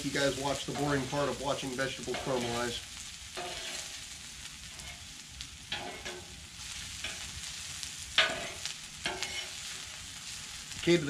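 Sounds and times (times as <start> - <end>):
vegetables sizzling on a griddle: 0.0 - 11.0
metal spatula scraping steel: 2.1 - 2.8, 3.4 - 4.0, 4.7 - 5.1, 5.7 - 6.3, 8.2 - 9.7.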